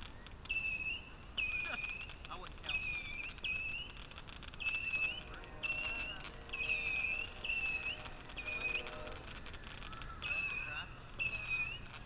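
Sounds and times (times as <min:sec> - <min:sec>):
sharp firework pops: 0:00.0 - 0:12.0
whistling firework missiles: 0:00.0 - 0:12.0.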